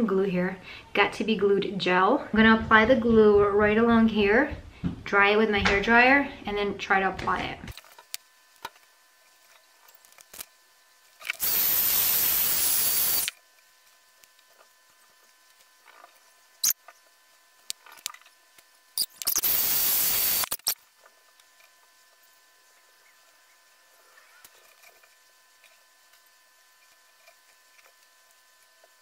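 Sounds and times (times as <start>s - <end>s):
hair dryer blowing: 11.4s - 13.3s.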